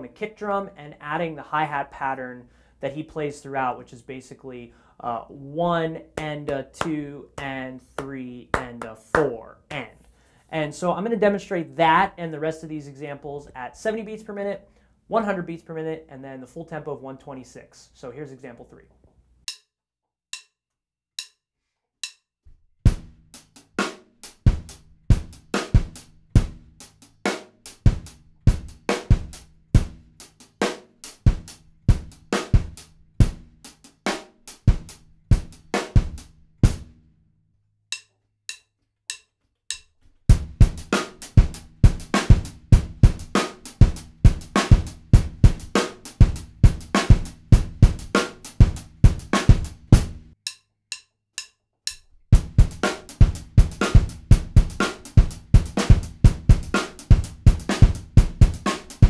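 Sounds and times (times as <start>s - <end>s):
drum kit funk groove: 22.9s - 37.0s, 40.3s - 50.4s, 52.3s - 59.0s.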